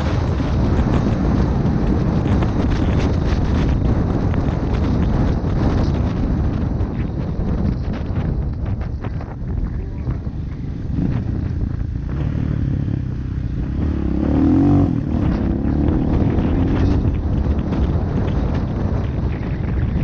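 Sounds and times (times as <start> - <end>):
off-road motorcycle engine running: 0.0 - 20.0
wind rumbling on microphone: 0.0 - 20.0.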